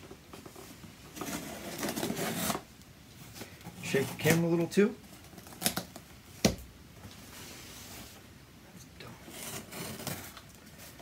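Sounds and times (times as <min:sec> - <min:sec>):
scratchy rasp: 0:09.2 - 0:10.3.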